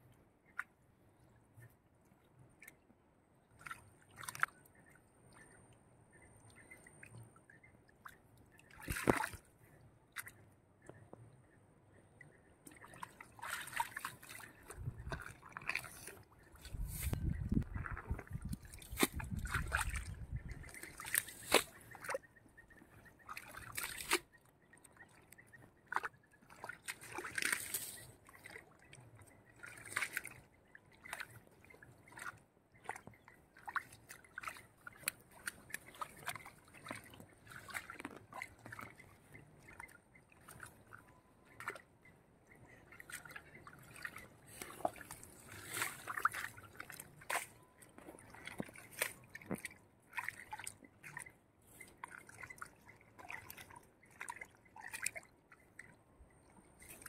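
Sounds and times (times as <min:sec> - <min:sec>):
pond water sloshing and trickling: 0:00.0 - 0:57.0
small water splashes: 0:00.4 - 0:11.3, 0:12.2 - 0:57.0.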